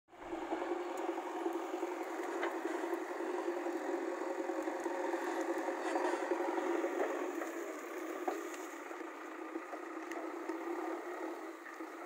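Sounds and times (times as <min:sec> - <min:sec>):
diesel engine running: 0:00.1 - 0:12.0
faint clicks: 0:04.6 - 0:12.0.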